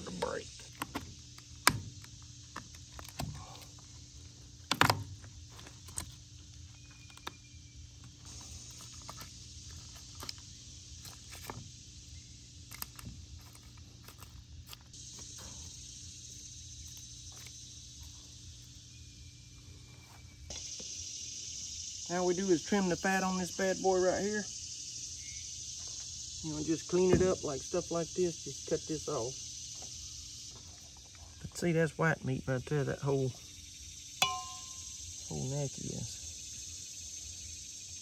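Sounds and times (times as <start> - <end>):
insects droning: 0.0 - 38.0.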